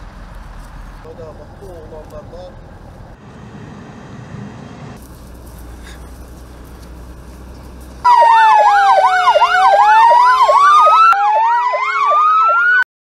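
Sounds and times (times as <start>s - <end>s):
faint outdoor background: 0.0s - 12.5s
police sirens warbling: 8.0s - 12.9s.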